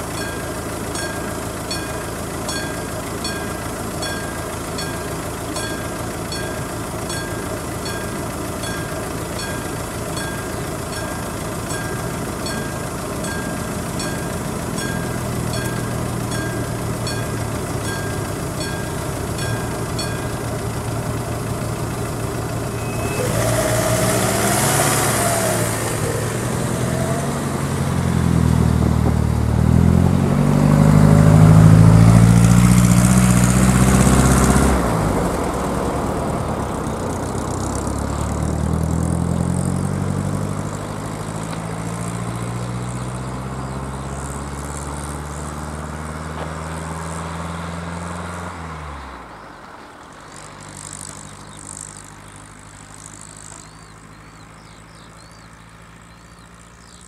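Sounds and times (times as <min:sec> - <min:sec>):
level crossing warning bell: 0:00.0 - 0:28.4
car engines idling: 0:00.0 - 0:57.0
cars driving past: 0:00.0 - 0:57.0.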